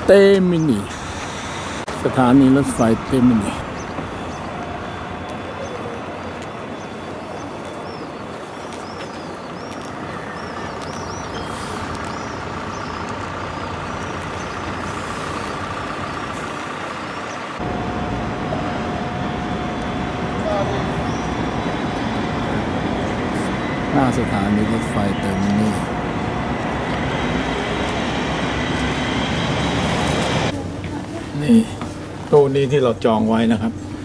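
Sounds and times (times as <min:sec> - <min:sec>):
traffic rumble with buses: 0:00.0 - 0:34.0
steady hum: 0:14.2 - 0:32.3.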